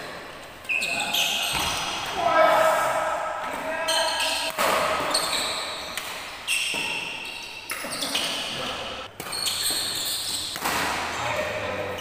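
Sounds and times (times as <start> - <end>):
rackets hitting shuttlecock: 1.5 - 2.2, 2.8 - 11.6.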